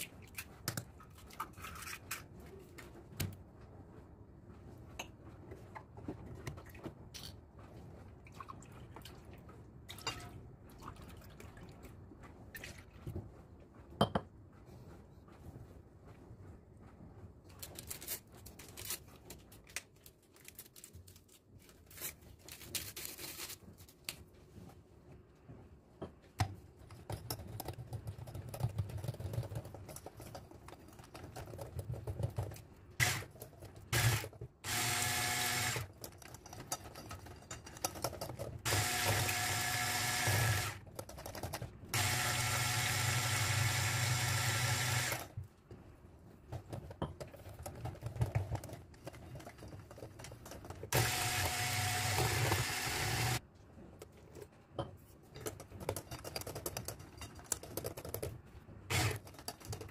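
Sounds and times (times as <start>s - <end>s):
electric hand mixer beating: 34.0s - 35.8s, 38.7s - 40.8s, 42.0s - 45.3s, 51.0s - 53.4s, 58.9s - 59.2s.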